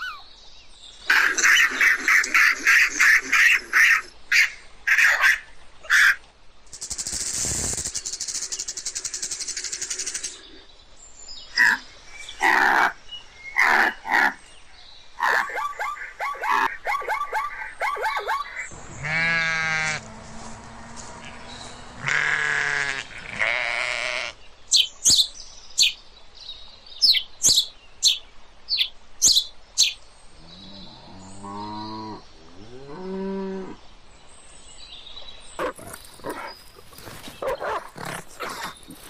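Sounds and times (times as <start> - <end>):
animal chirps: 0.0 - 0.3, 15.2 - 18.7
rapid chattering call: 1.1 - 10.4
sheep bleating: 19.0 - 20.1, 21.2 - 24.4.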